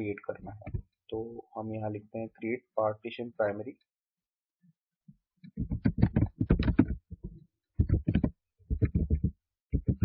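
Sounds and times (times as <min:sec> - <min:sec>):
computer keyboard typing: 0:05.6 - 0:10.0.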